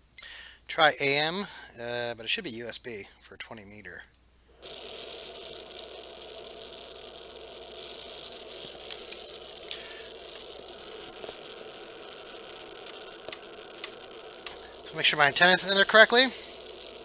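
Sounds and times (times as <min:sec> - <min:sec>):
faint clicks: 0:03.4 - 0:04.3, 0:05.4 - 0:17.0
radio static hiss: 0:04.5 - 0:17.0.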